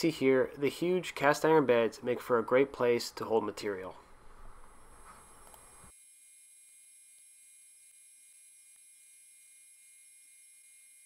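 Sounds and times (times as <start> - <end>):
low hiss: 0.0 - 5.9.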